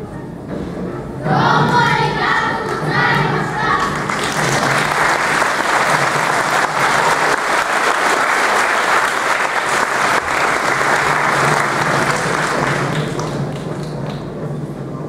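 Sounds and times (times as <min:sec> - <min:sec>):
crowd applauding: 0:03.8 - 0:14.4.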